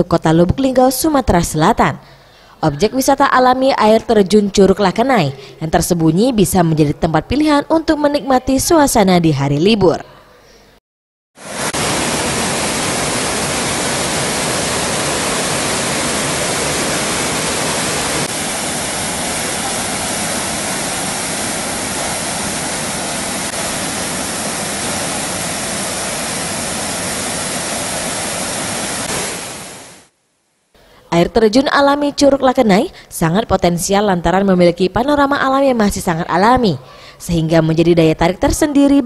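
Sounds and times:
waterfall rushing over boulders: 11.4 - 30.1.

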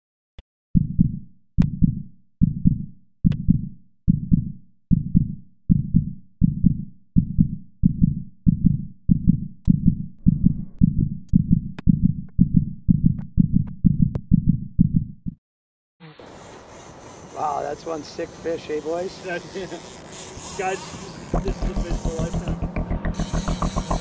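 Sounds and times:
heartbeat thumps: 0.8 - 15.4, 21.4 - 24.0.

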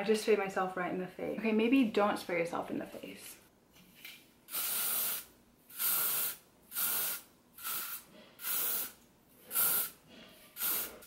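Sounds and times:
hairspray can hissing: 4.5 - 11.0.

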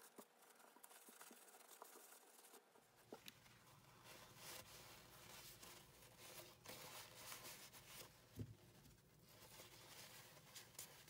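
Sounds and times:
paper towel rustling and rubbing: 3.4 - 11.0.

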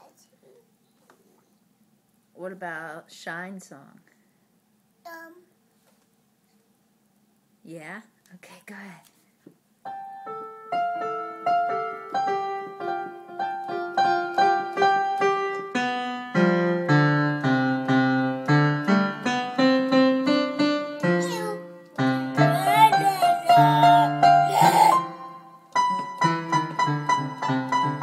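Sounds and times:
child pressing piano keys: 21.0 - 25.1.

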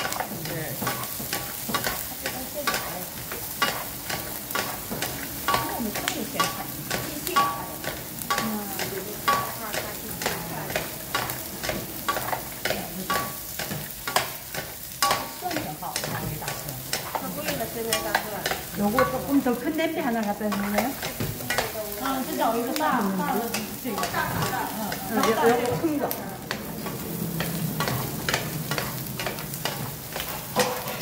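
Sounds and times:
food sizzling in oil: 0.0 - 31.0
wooden spatulas scraping a pan: 9.1 - 31.0.

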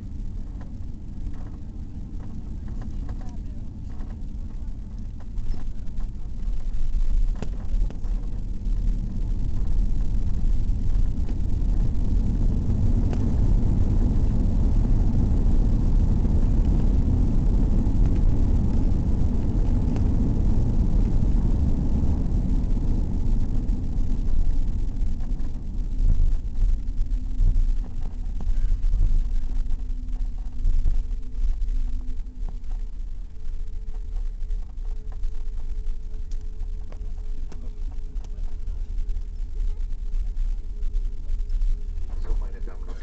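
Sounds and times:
aircraft cabin rumble: 0.0 - 43.0.

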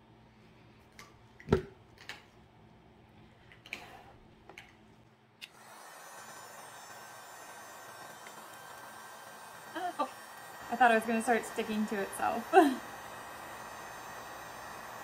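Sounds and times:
heat gun blowing air hiss: 5.5 - 15.0.

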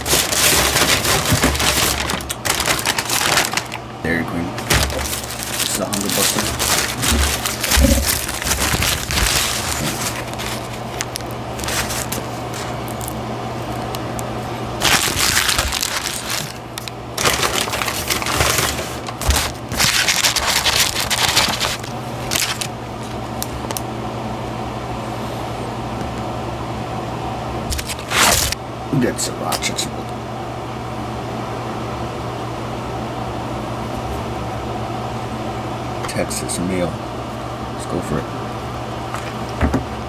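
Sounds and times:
paper wrapper crinkling: 0.0 - 3.9, 4.6 - 23.8, 27.7 - 28.6
steady low hum: 0.0 - 40.0.

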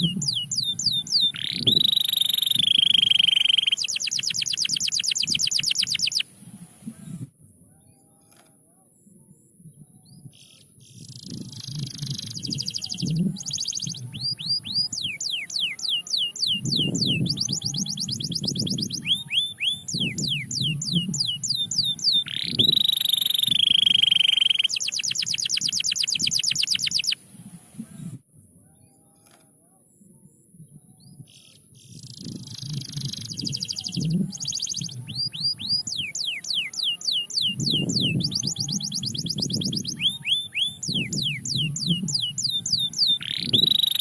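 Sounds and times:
canary singing: 0.0 - 6.3, 11.0 - 27.2, 31.9 - 44.0.

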